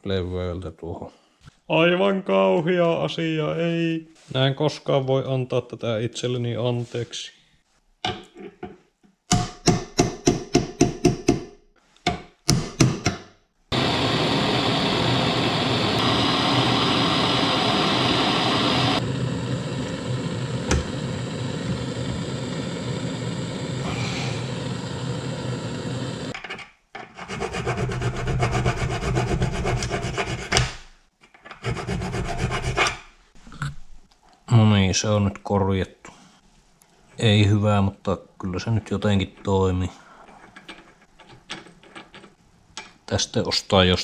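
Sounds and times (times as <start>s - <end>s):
hand file rasping on steel: 27.2s - 30.8s, 31.6s - 33.0s.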